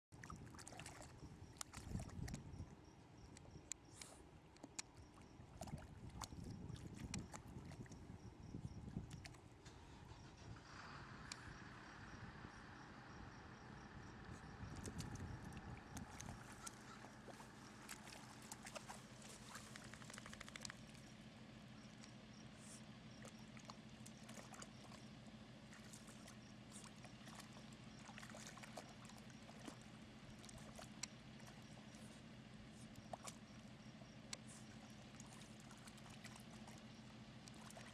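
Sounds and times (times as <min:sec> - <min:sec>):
puppy splashing in mud puddle: 0:00.2 - 0:02.5, 0:05.5 - 0:08.0, 0:14.4 - 0:21.1, 0:21.9 - 0:32.1, 0:32.8 - 0:37.9
steady low hum: 0:00.2 - 0:37.9
low rumble: 0:09.8 - 0:18.3.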